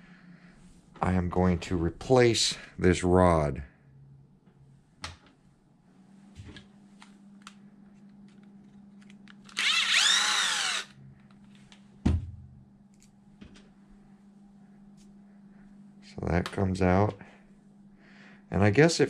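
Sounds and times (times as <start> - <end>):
cordless drill spinning: 9.2 - 11.0.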